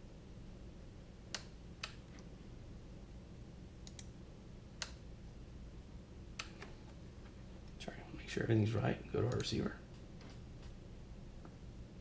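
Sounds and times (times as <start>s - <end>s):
low steady hum: 0.0s - 12.0s
computer mouse clicking: 3.8s - 4.1s, 6.4s - 6.8s, 9.2s - 9.6s.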